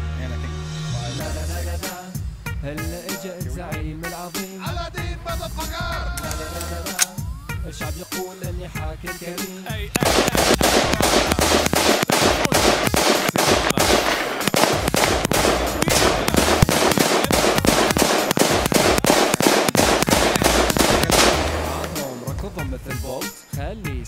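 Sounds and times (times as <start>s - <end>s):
rifle firing rapid shots: 10.0s - 22.1s.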